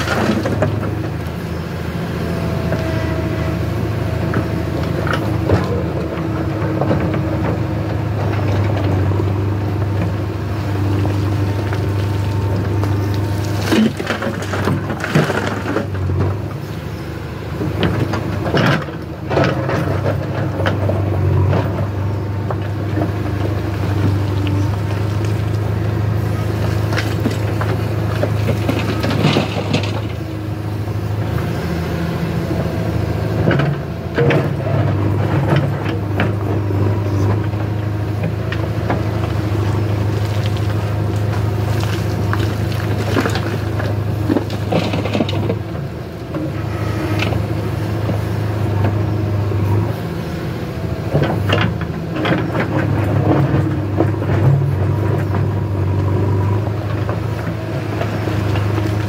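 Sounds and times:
diesel engine under load: 0.0 - 59.0
soil and stones scraping bucket: 10.7 - 15.9.

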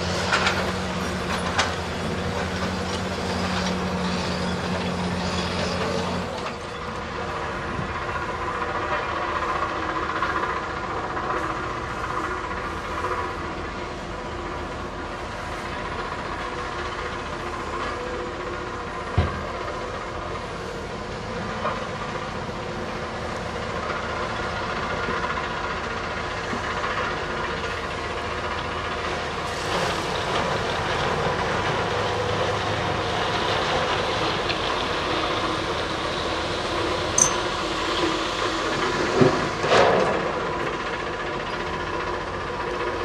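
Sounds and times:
diesel engine rumbling: 0.0 - 43.0
sharp metal clank: 37.2 - 37.7.

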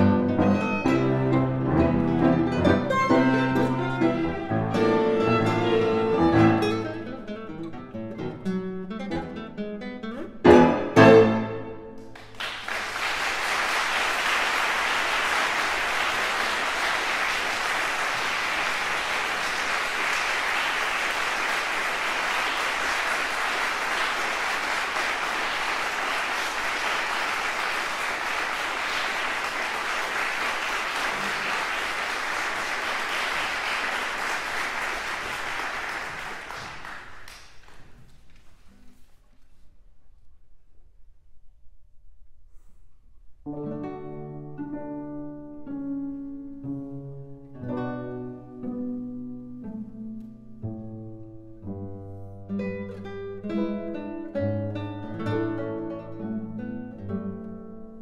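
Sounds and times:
classical guitar and string quartet: 0.0 - 12.3, 43.5 - 58.0
audience applauding: 2.1 - 6.9, 12.0 - 38.4.

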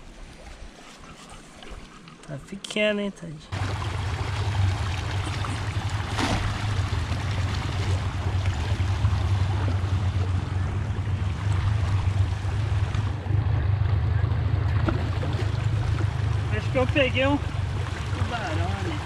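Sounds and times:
low rumble: 3.5 - 19.0
net splashing into water: 3.6 - 8.9.

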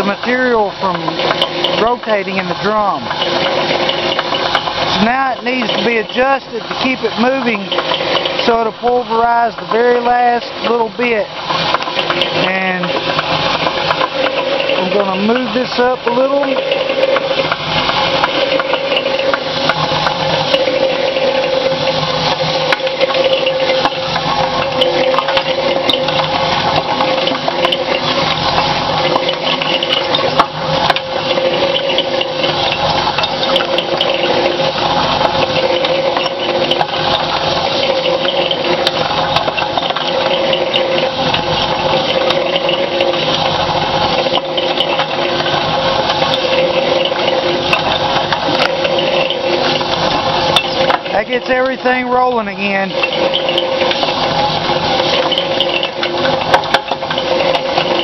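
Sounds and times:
mixer motor hum: 0.0 - 58.0
steel balls tumbling in drum: 0.0 - 58.0.

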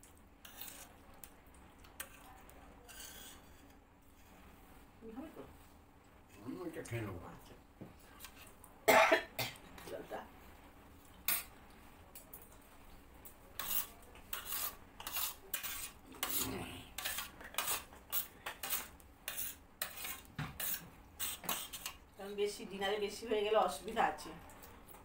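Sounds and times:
spoons scraping and clinking on plates: 0.4 - 4.4, 11.2 - 11.6, 13.6 - 22.0.

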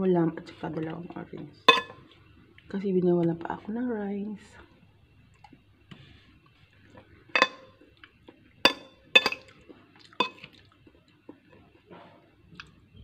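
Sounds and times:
metal spoon clinking on glass bowl: 1.7 - 2.0, 7.4 - 7.7, 8.7 - 9.5, 10.2 - 10.5.

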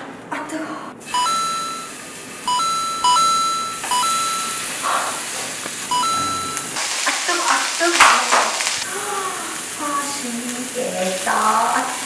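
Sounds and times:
rising electronic beeps: 1.1 - 5.0, 5.8 - 6.8
beef sizzling in hot oil: 3.8 - 12.0.

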